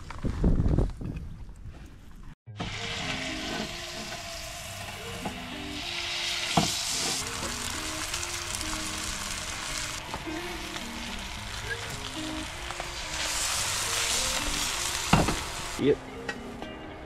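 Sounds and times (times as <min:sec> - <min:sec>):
oil sizzling in a skillet: 0:02.6 - 0:15.8.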